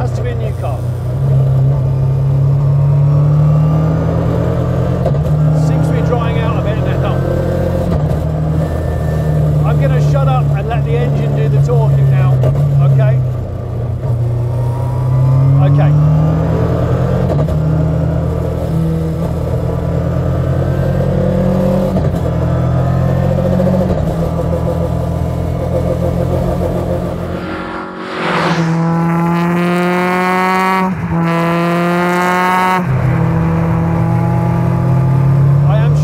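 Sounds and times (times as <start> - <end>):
car engine revving: 11.5 - 36.0.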